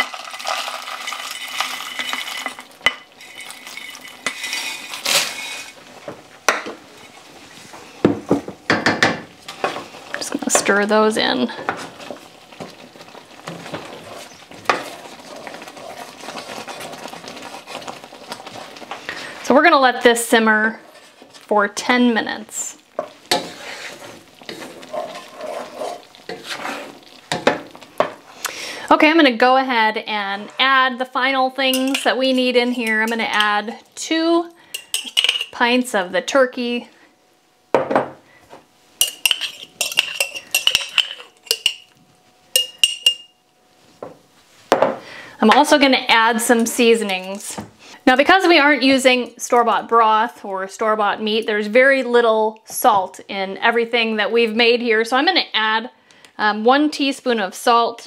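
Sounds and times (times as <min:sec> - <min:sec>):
wooden spatula scraping a skillet: 0:01.1 - 0:08.1, 0:09.4 - 0:19.4, 0:20.4 - 0:21.6, 0:23.0 - 0:28.4, 0:30.1 - 0:30.9, 0:39.0 - 0:41.8
metal utensil clinking on glass jar: 0:31.7 - 0:32.1, 0:39.0 - 0:41.9, 0:42.6 - 0:43.3.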